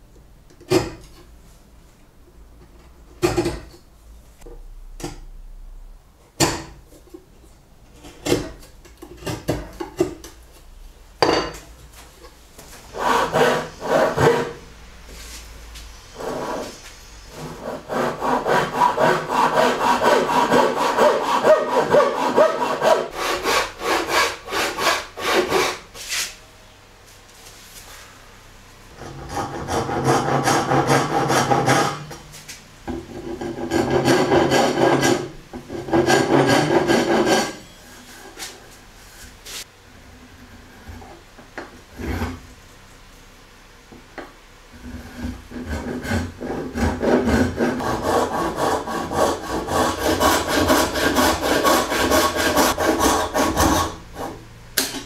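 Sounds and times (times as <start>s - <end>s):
hand saw cutting wood: 12.9s - 14.6s, 16.2s - 25.9s, 28.9s - 32.2s, 33.0s - 37.6s, 41.9s - 42.4s, 44.8s - 54.4s.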